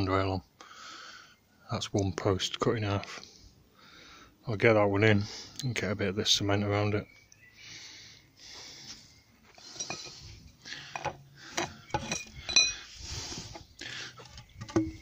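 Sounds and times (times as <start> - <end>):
metal trowel scraping and clinking: 9.6 - 10.3, 10.9 - 12.9.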